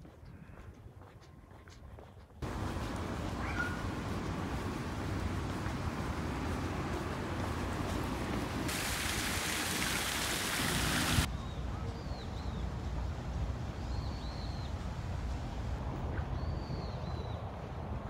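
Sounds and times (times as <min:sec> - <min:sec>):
loud steady hiss: 0:02.4 - 0:11.3.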